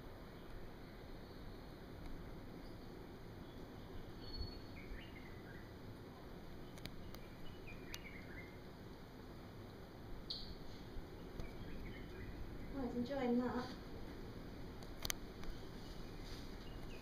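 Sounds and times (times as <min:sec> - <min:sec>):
faint outdoor background: 0:00.0 - 0:17.0
falling bird chirps: 0:02.6 - 0:05.8, 0:10.2 - 0:13.0
light clicks: 0:06.7 - 0:07.3, 0:14.8 - 0:15.6.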